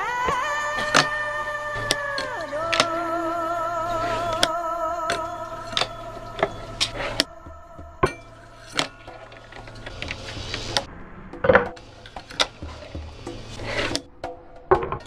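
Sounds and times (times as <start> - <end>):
fingerboard scraping: 12.0 - 14.1.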